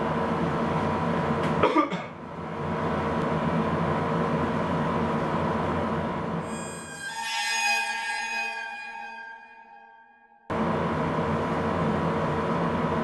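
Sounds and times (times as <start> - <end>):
person coughing: 1.6 - 2.2.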